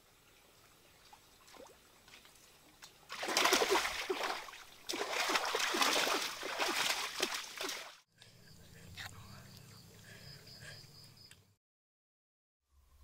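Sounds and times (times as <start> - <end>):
hands splashing in water: 3.1 - 8.0.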